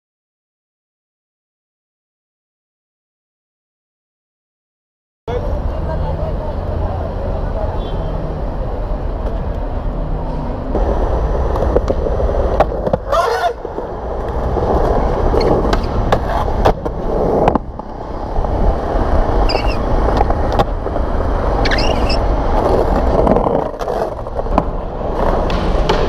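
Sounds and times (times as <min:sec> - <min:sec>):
skateboard wheels rolling on concrete: 0:05.3 - 0:26.0
skateboard clacking on ground: 0:10.7 - 0:26.0.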